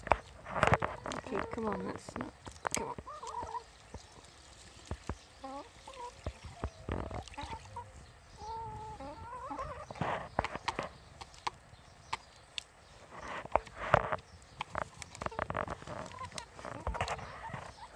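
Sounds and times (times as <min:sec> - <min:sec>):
beaks pecking in plastic tray: 0:00.0 - 0:07.6, 0:08.5 - 0:17.9
hens making soft wavering calls: 0:00.5 - 0:10.9, 0:15.2 - 0:17.9.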